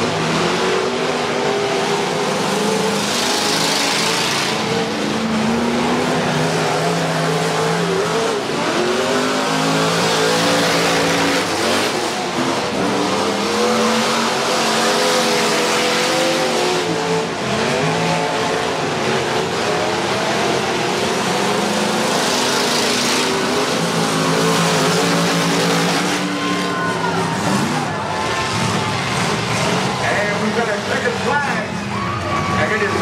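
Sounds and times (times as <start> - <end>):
constant rush of noise: 0.0 - 33.0
race car engines revving: 0.0 - 33.0.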